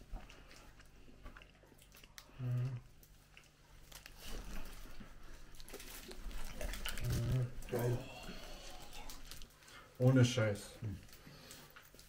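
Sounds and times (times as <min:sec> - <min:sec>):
soft chewing: 0:00.0 - 0:12.0
plastic wrapper rustling: 0:03.8 - 0:12.0
person humming: 0:07.0 - 0:09.3.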